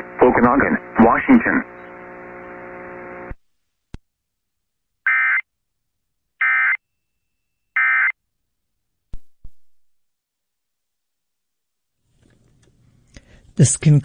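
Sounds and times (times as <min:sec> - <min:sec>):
harsh buzzing data tones: 0:00.0 - 0:03.3, 0:05.1 - 0:05.4, 0:06.4 - 0:06.8, 0:07.7 - 0:08.2
steady hum with hiss: 0:00.0 - 0:03.8, 0:12.1 - 0:14.0.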